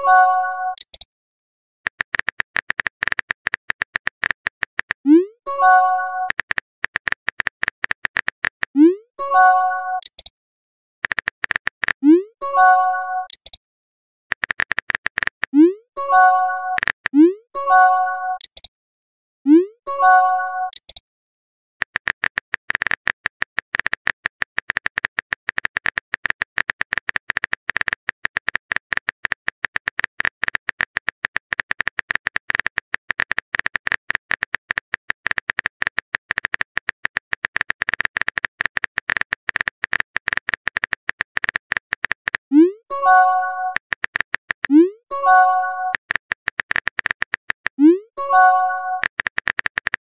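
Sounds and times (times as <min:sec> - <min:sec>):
phone keyboard typing clicks: 0:00.7 - 0:01.1, 0:01.9 - 0:08.9, 0:10.0 - 0:10.3, 0:11.0 - 0:12.2, 0:12.9 - 0:13.6, 0:14.3 - 0:17.4, 0:18.3 - 0:18.7, 0:20.6 - 0:21.0, 0:21.8 - 0:50.0
message pop with chime: 0:44.7 - 0:46.0, 0:47.8 - 0:49.0.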